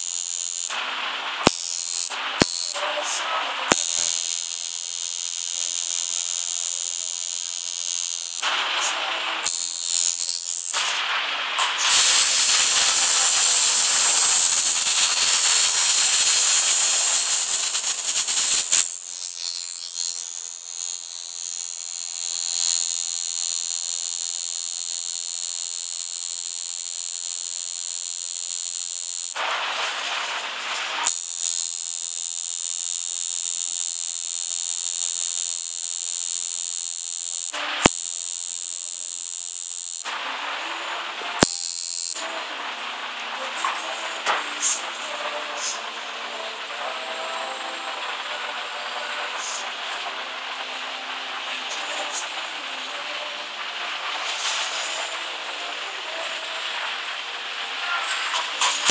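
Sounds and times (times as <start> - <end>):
tattoo machine buzzing: 0.0 - 2.9, 3.7 - 8.6, 9.4 - 11.0, 11.8 - 29.6, 31.0 - 40.2, 41.4 - 42.3.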